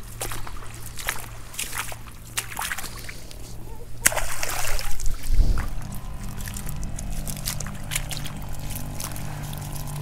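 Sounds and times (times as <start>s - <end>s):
footsteps splashing through water: 0.0s - 10.0s
low hum: 0.0s - 10.0s
microphone rumble: 3.3s - 10.0s.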